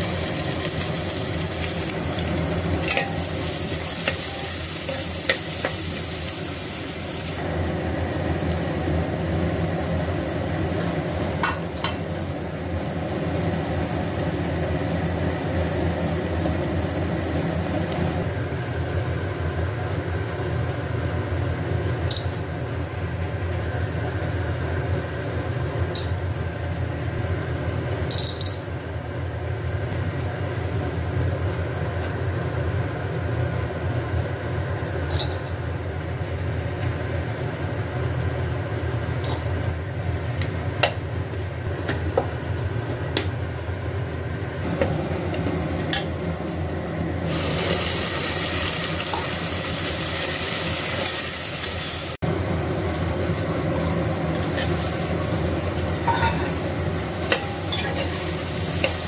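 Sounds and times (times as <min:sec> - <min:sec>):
onions sizzling in hot oil: 0:00.0 - 0:26.3, 0:44.6 - 0:59.0.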